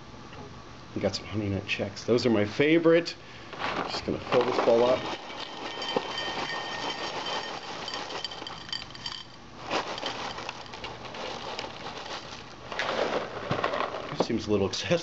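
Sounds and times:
cereal pouring into ceramic bowl: 3.9s - 13.8s.

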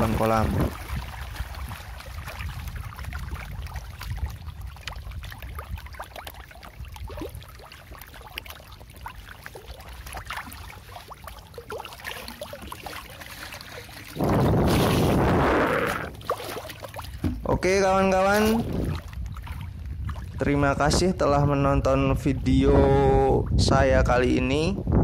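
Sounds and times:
fish splashing at water surface: 0.0s - 17.4s, 18.3s - 20.4s.

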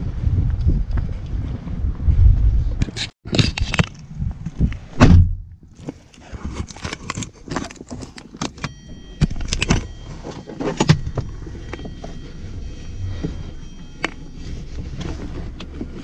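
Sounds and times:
low wind rumble: 0.0s - 5.8s, 8.7s - 16.0s
fishing gear clicking and rattling: 5.8s - 12.2s.

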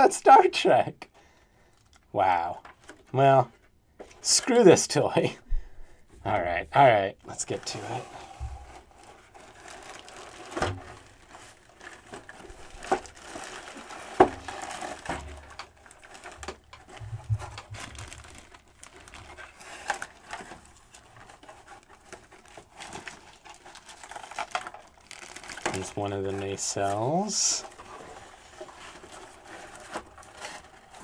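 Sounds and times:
plastic and cardboard packaging crinkling: 7.3s - 31.0s.

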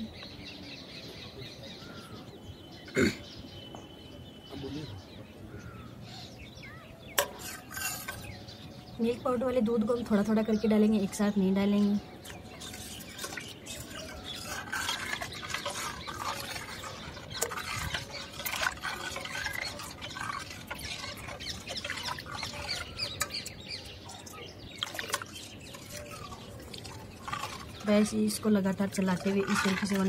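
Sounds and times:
birds chirping: 0.0s - 30.0s
spoon and whisk clinking on metal pan: 7.2s - 8.4s.

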